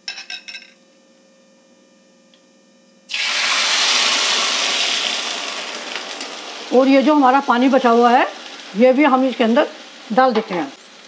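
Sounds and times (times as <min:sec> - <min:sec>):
hot oil sizzling loudly: 0:03.1 - 0:11.0.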